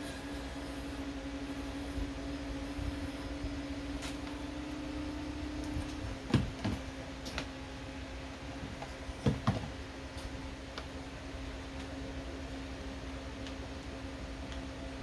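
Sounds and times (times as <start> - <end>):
small pump motor humming: 0.0 - 10.0.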